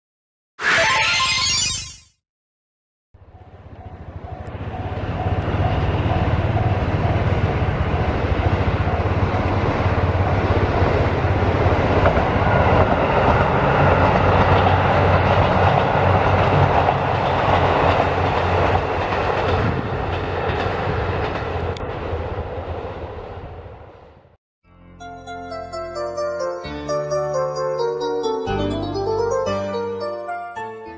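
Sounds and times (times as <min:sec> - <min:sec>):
diesel train passing: 0:03.2 - 0:24.4
train wheels on rail: 0:03.5 - 0:24.3.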